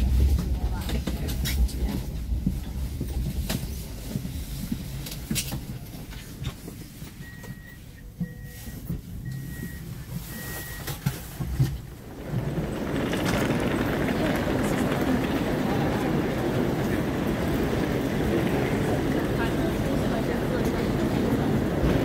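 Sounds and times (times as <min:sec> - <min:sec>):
station platform noise: 0:00.0 - 0:22.0
train carriage rumble: 0:00.0 - 0:22.0
short high door beeps: 0:07.2 - 0:11.0.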